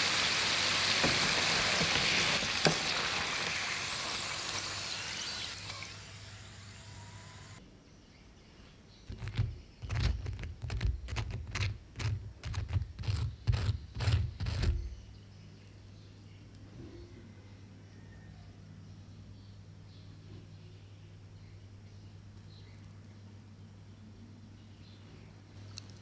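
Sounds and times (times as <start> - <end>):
hot oil sizzling: 0.0 - 7.6.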